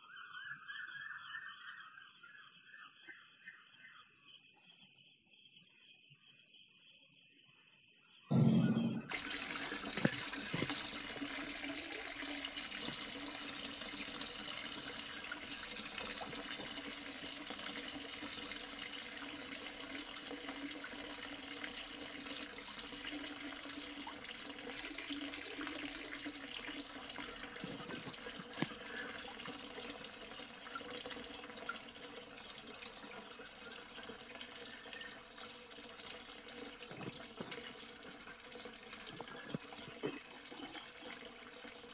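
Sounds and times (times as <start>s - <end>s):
water spraying and splashing: 9.1s - 41.9s.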